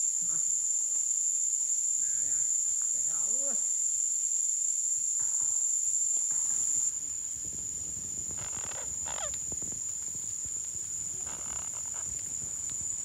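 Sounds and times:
insects droning: 0.0s - 13.0s
low sliding calls: 8.4s - 9.4s.

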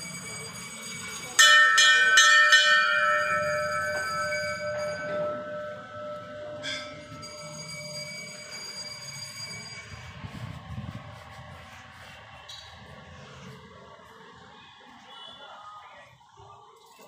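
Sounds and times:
temple bell ringing: 0.0s - 10.8s.

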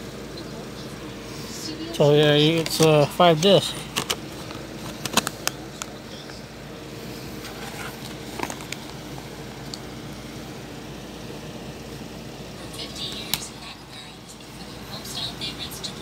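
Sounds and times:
steady low hum: 0.0s - 16.0s
plastic disc case clicks: 2.5s - 6.0s, 7.7s - 8.9s.

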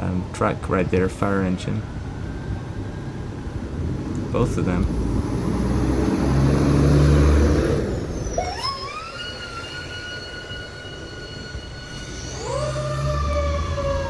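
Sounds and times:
fire engine rumble: 0.0s - 14.0s
fire engine siren: 5.8s - 14.0s.

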